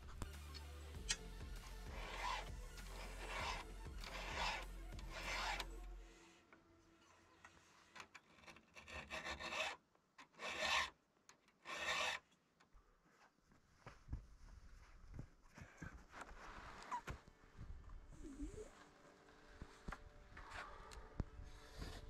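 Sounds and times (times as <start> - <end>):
hand file rasping on chain: 1.0 - 5.9, 8.5 - 11.0, 11.6 - 12.3.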